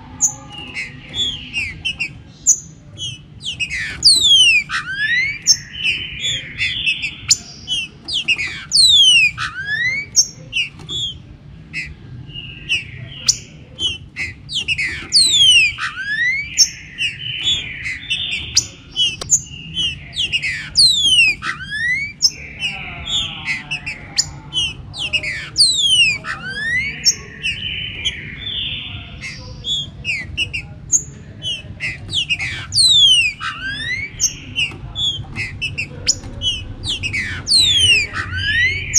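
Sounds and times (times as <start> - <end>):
other birds whistling: 0.0 - 38.9
bird singing whistled phrases: 0.2 - 11.2, 11.8 - 30.8, 31.4 - 38.9.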